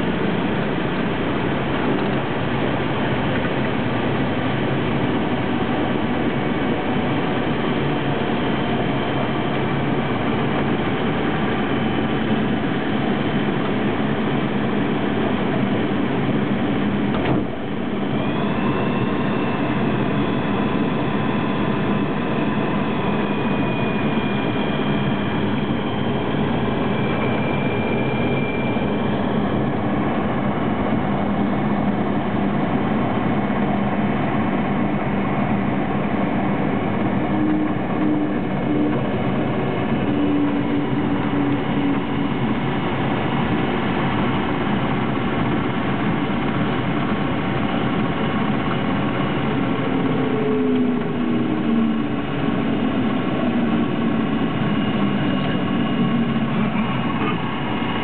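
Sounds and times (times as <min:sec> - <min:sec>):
aircraft engine and propeller: 0:00.0 - 0:58.0.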